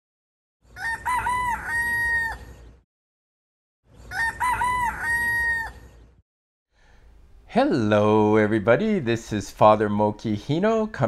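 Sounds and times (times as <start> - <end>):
rooster crowing: 0.6 - 2.6, 4.1 - 6.0.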